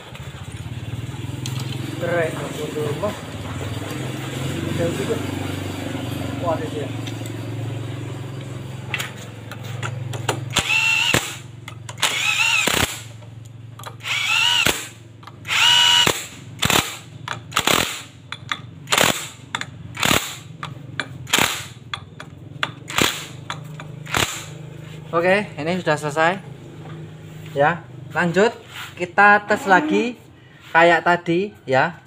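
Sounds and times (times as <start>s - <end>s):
cordless drill whining: 10.5s - 11.4s, 12.0s - 13.0s, 14.0s - 16.8s.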